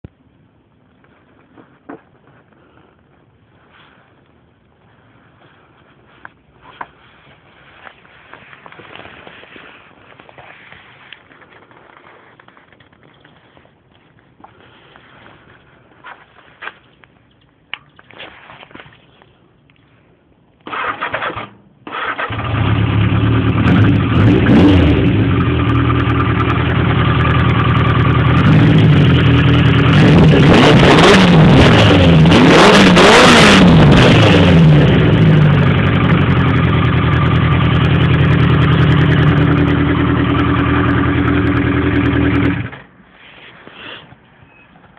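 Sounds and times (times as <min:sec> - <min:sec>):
motorcycle engine cranking: 0:20.6 - 0:24.1
motorcycle engine revving: 0:20.7 - 0:42.9.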